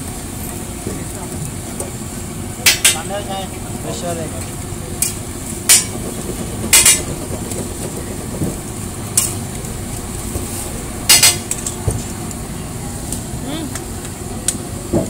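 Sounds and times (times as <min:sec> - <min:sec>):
burgers sizzling: 0:00.0 - 0:15.0.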